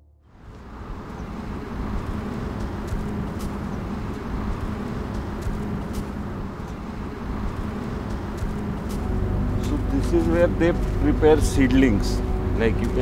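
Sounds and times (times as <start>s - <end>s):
low rumble: 7.3s - 13.0s.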